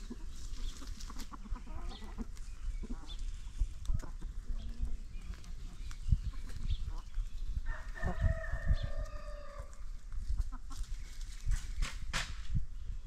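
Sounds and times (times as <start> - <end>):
rooster crowing: 7.7 - 9.8.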